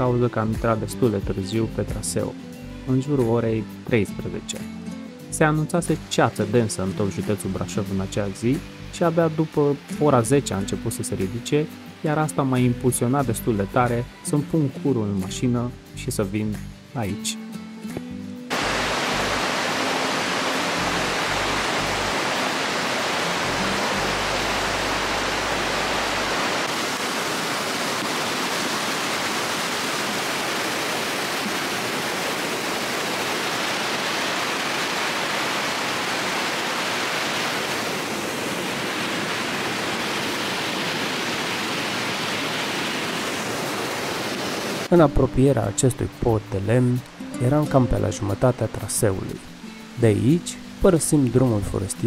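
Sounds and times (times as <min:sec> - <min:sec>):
stream rushing over rocks: 0:05.7 - 0:13.1, 0:18.5 - 0:45.0.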